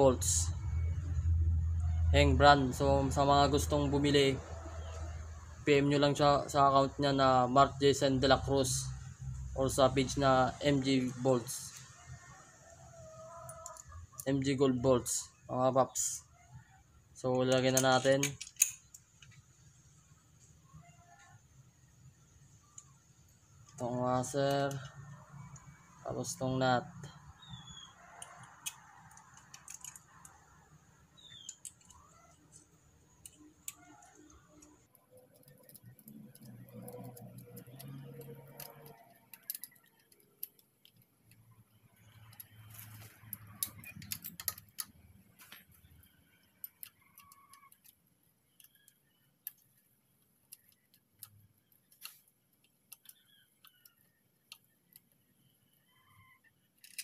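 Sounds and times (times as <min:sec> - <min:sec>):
metallic clicks of nut and wrench: 0:17.3 - 0:19.4, 0:28.2 - 0:30.4, 0:31.2 - 0:45.1, 0:46.0 - 0:49.9, 0:50.5 - 0:55.2, 0:56.7 - 0:57.0.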